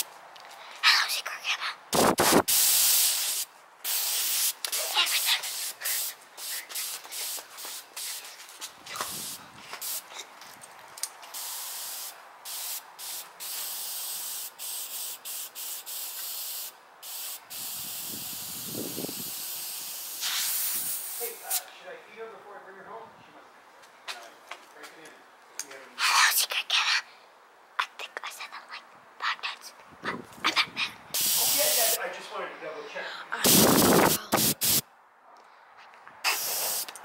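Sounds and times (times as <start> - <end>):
compressed air hissing from blow-gun: 2.0 - 8.3, 11.4 - 21.6, 31.2 - 32.0, 33.4 - 34.8, 36.2 - 36.9.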